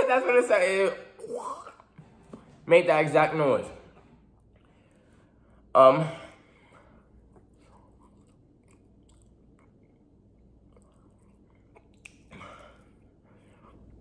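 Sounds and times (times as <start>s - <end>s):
chewing crunchy chip: 7.3s - 12.4s.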